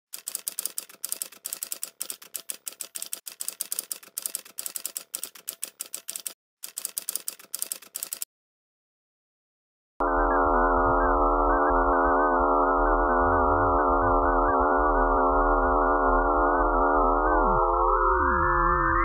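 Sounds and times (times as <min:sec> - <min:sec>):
typewriter keystrokes clicking: 0:00.2 - 0:08.2.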